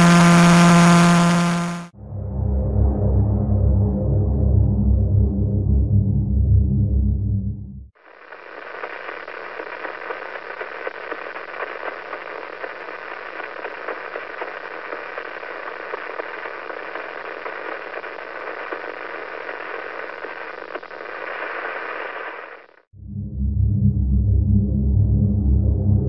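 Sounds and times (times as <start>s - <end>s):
radio static hiss with clicks: 0.0s - 1.9s, 8.0s - 22.9s
low steady hum: 0.0s - 7.9s, 23.0s - 26.0s.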